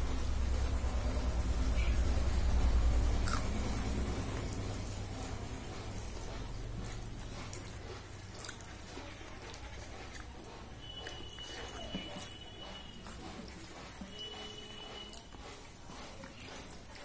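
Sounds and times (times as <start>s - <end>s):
person chewing: 3.1s - 5.0s, 5.8s - 16.9s
wet mouth clicks: 3.2s - 3.9s, 7.4s - 8.8s.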